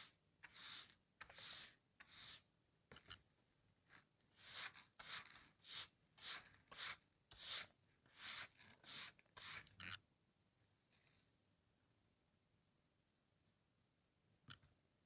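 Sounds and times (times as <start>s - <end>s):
stiff brush scratchy strokes: 0.0s - 2.5s, 4.4s - 10.0s.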